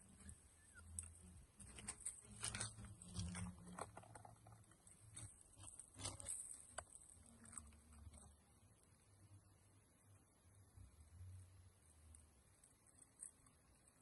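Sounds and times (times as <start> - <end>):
dry leaves rustling: 0.9 - 4.2, 4.8 - 8.0.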